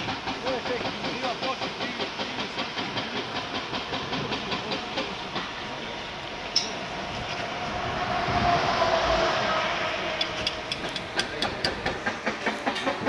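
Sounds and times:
train passing: 0:00.0 - 0:13.0
train wheels clicking: 0:00.0 - 0:13.0.

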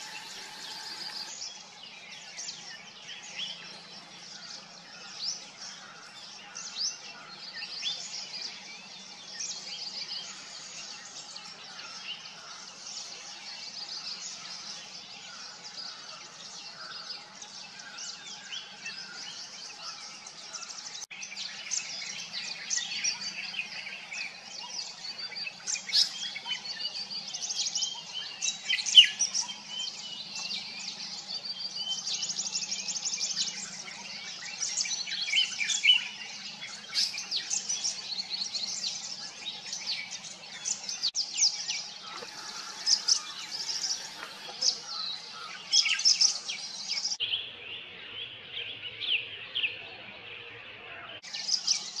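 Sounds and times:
birds chirping and calling: 0:00.0 - 0:52.0.

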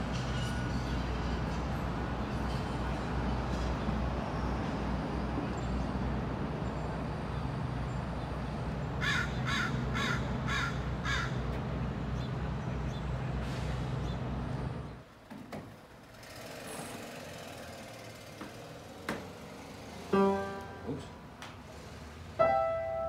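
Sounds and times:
low hum of city traffic: 0:00.0 - 0:23.0
crow cawing: 0:09.0 - 0:11.4.

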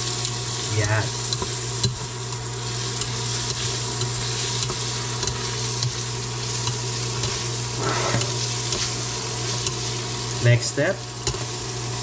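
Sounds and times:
meat sizzling in a pot: 0:00.0 - 0:12.0
spatula ticking against pot: 0:00.2 - 0:07.5.

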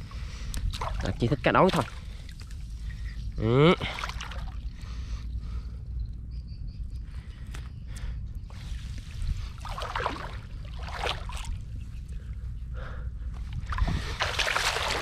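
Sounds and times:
water splashing and trickling: 0:00.5 - 0:05.4, 0:08.5 - 0:11.8, 0:13.5 - 0:15.0.

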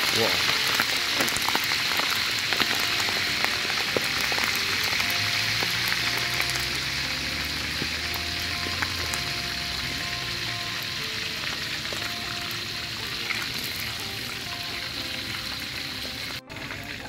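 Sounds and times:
fish sizzling in hot oil: 0:00.0 - 0:17.0
soft background music: 0:00.0 - 0:17.0.

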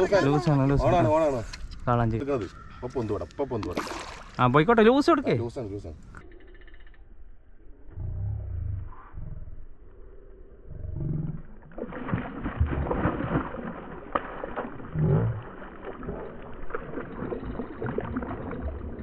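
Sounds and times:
fish thrashing and splashing: 0:03.7 - 0:04.4, 0:11.6 - 0:19.0.

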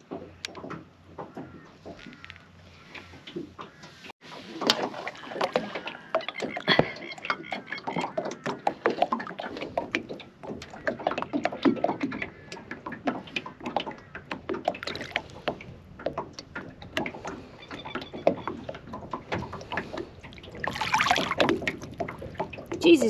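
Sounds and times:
water splashing against boat: 0:00.0 - 0:23.0
water dripping: 0:04.6 - 0:23.0.

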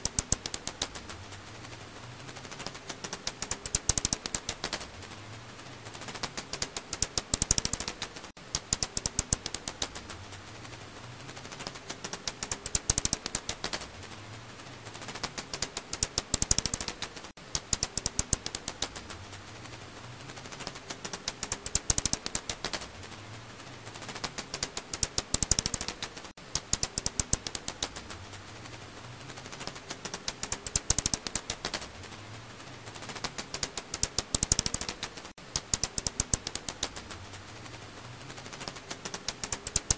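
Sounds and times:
bat calls rapid clicking: 0:00.0 - 0:01.2, 0:02.3 - 0:05.0, 0:05.9 - 0:10.2, 0:11.3 - 0:14.1, 0:15.0 - 0:19.2, 0:20.3 - 0:23.1, 0:24.0 - 0:28.3, 0:29.3 - 0:32.0, 0:32.9 - 0:37.2, 0:38.2 - 0:39.9.

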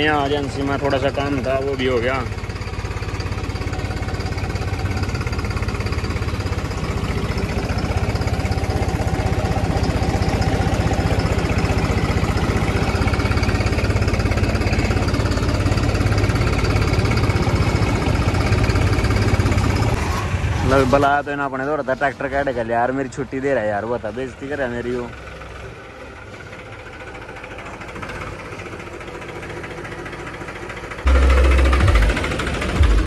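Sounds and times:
tractor diesel engine running: 0:00.0 - 0:33.0.

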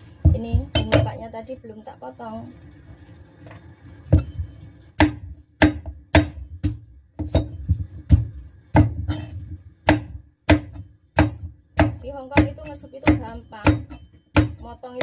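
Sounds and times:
cleaver chopping on wooden board: 0:05.0 - 0:14.6.

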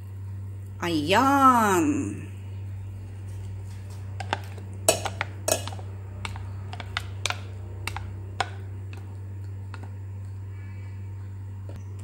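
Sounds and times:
utensil clicking against bowl and pan: 0:03.8 - 0:10.0.

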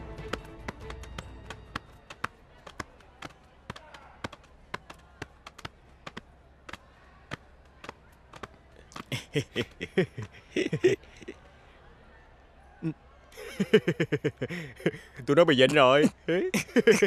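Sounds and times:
man chuckling: 0:09.0 - 0:11.4, 0:13.4 - 0:15.1, 0:16.3 - 0:17.0.

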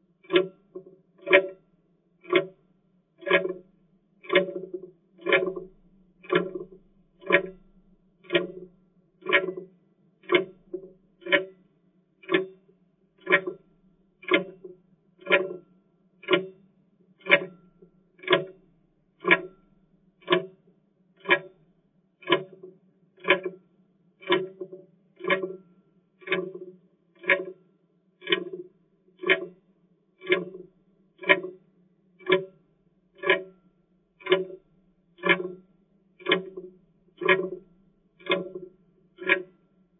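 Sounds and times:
clock ticking: 0:02.2 - 0:02.6, 0:03.2 - 0:03.6, 0:04.2 - 0:11.5, 0:13.2 - 0:13.6, 0:14.2 - 0:15.6, 0:16.2 - 0:16.6, 0:17.2 - 0:18.6, 0:19.2 - 0:19.6, 0:20.2 - 0:20.5, 0:21.2 - 0:21.6, 0:22.2 - 0:23.6, 0:24.2 - 0:25.6, 0:26.2 - 0:27.6, 0:28.2 - 0:28.6, 0:29.2 - 0:29.5, 0:30.2 - 0:31.6, 0:33.2 - 0:33.6, 0:34.2 - 0:35.6, 0:36.2 - 0:39.7.

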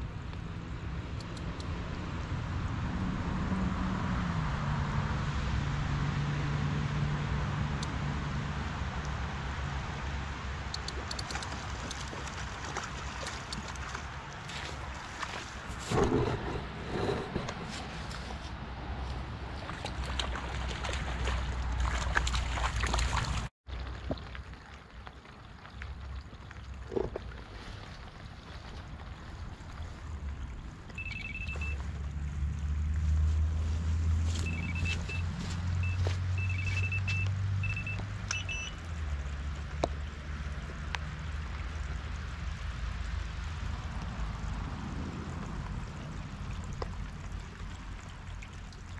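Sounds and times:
wind rumbling on microphone: 0:00.0 - 0:23.5, 0:39.1 - 0:48.2
fish splashing and thrashing: 0:10.8 - 0:37.6
wind on microphone: 0:15.6 - 0:19.6
bite alarm beeping: 0:31.0 - 0:31.8, 0:34.4 - 0:38.8.

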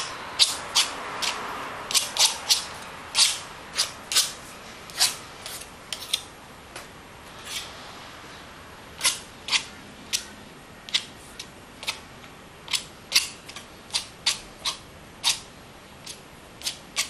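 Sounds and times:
palette knife scraping paint: 0:00.0 - 0:06.3, 0:12.7 - 0:17.0.

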